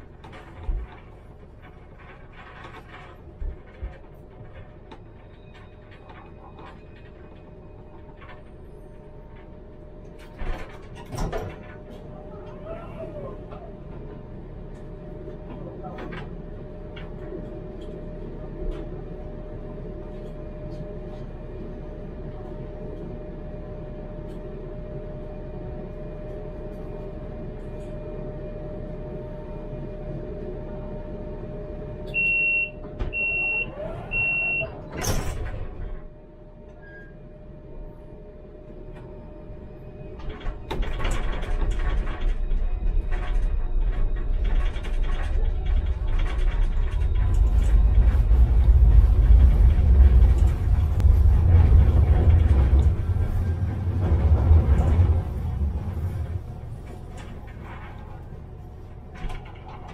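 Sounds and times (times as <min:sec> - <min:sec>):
tram humming: 0:00.0 - 0:59.9
high warning beeps: 0:32.2 - 0:34.7
doors sliding shut with thump: 0:34.8 - 0:36.0.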